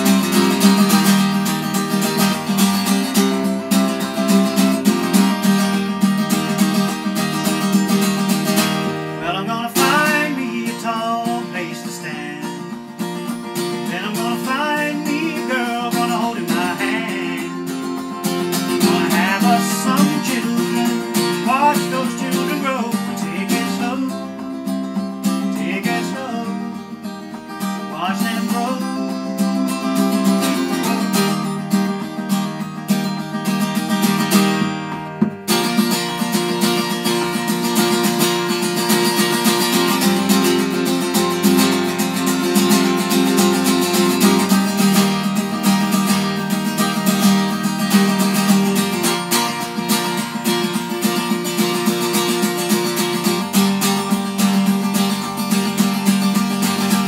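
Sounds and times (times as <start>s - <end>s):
acoustic guitar strumming: 0.0s - 57.0s
man singing: 9.2s - 13.0s, 13.7s - 31.4s.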